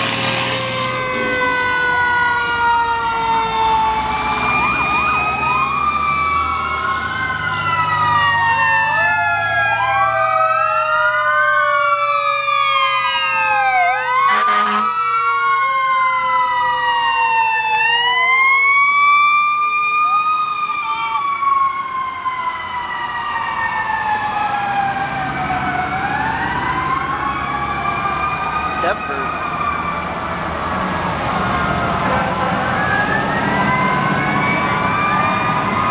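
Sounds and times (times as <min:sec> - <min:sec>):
fire truck sirens wailing: 0:00.0 - 0:35.9
truck engines rumbling: 0:00.0 - 0:35.9
short loud horn blast: 0:14.3 - 0:14.9.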